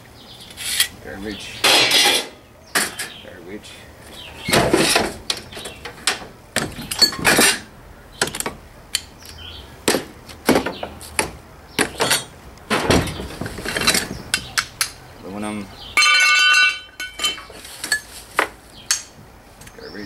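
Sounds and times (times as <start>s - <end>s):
scrap metal clanking: 1.6s - 3.2s, 4.2s - 7.7s, 11.9s - 14.6s, 16.0s - 19.1s.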